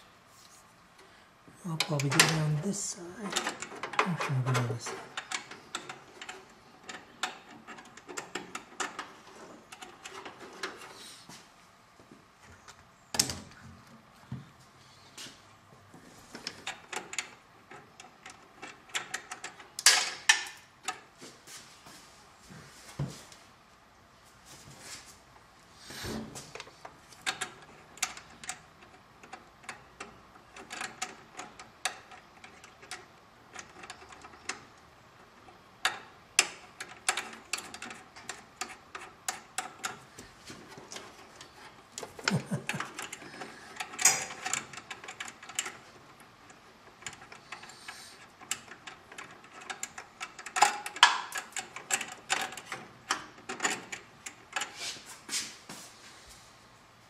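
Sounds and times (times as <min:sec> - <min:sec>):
hands handling wiring: 0:24.4 - 0:55.9.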